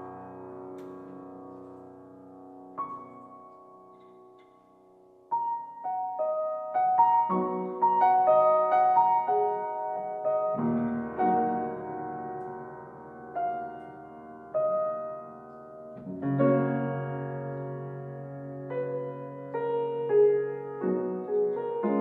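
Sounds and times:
solo piano music: 0.0s - 22.0s.

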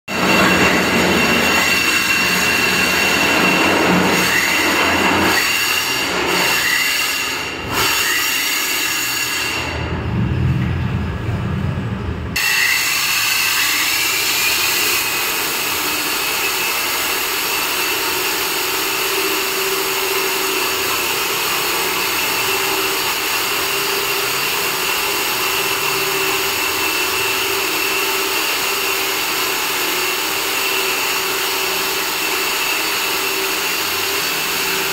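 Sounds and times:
core drill grinding concrete: 0.1s - 9.9s, 12.4s - 34.9s
drill high whine: 0.1s - 9.9s, 12.4s - 34.9s.

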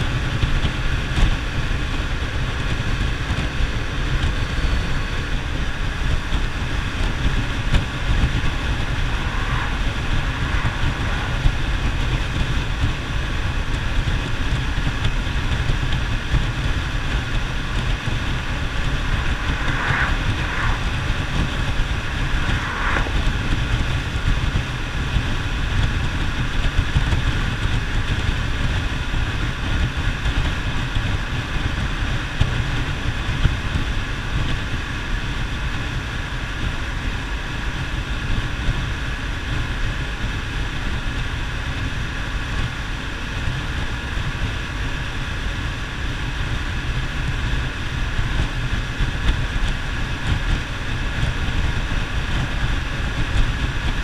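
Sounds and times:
wind rushing over microphone: 0.0s - 54.0s
motorcycle engine cruising: 2.8s - 26.2s.

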